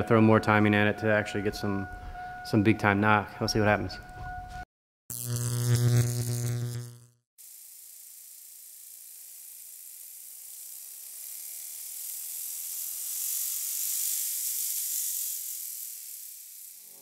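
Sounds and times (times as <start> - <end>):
loud hiss: 7.4 - 17.0.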